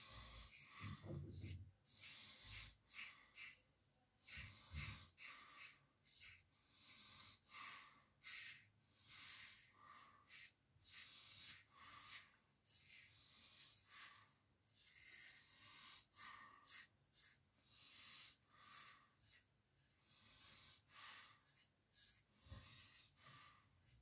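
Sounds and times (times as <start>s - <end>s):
razor scraping stubble: 0.2s - 7.6s, 18.6s - 20.0s, 21.3s - 22.3s.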